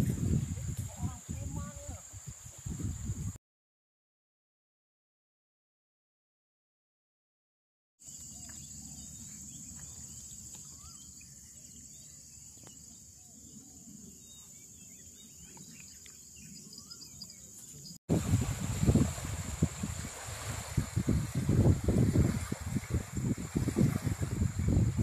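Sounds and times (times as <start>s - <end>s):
insects droning: 0.0s - 3.3s, 8.0s - 25.0s
wind noise on microphone: 0.0s - 3.4s, 18.1s - 25.0s
bird chirps: 8.1s - 18.0s.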